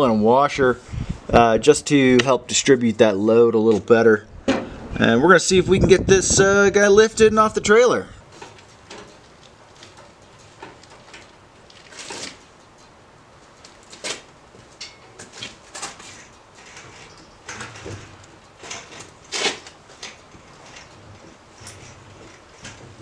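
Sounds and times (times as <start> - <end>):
hydraulic hoist clunking and creaking: 8.2 - 23.0.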